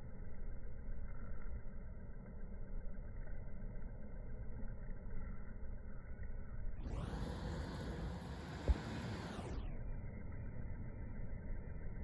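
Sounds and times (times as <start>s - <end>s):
muffled low rumble: 6.8s - 12.0s.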